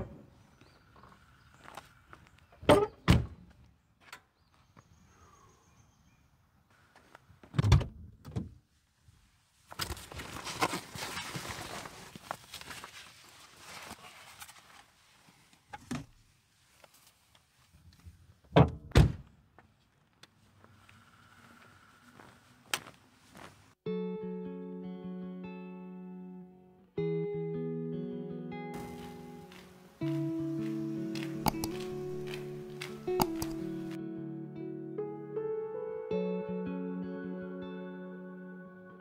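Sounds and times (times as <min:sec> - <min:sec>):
backpack rustling: 0:09.9 - 0:15.0, 0:28.8 - 0:33.9.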